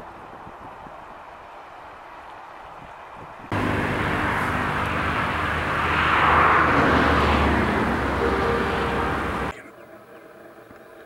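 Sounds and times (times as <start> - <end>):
low engine hum: 3.5 - 9.5
rushing noise: 3.5 - 9.5.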